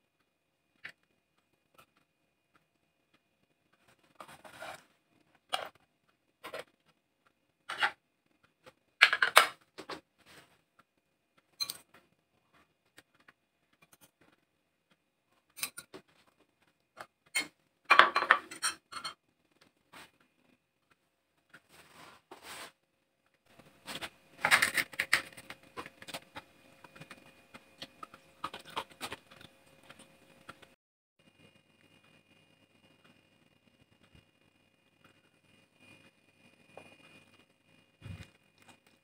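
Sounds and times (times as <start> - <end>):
metal spoon scraping ceramic plates: 17.4 - 19.2.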